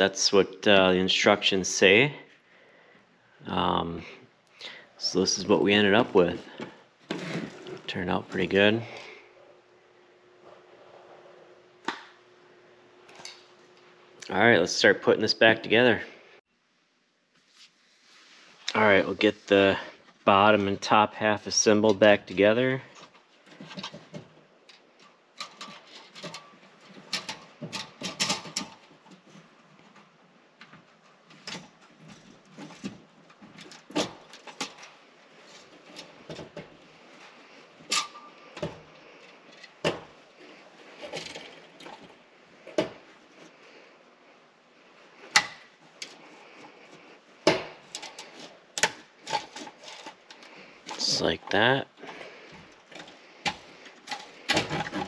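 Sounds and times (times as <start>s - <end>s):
plastic parts clicking and knocking: 23.0s - 36.8s, 47.4s - 51.0s, 52.0s - 55.0s.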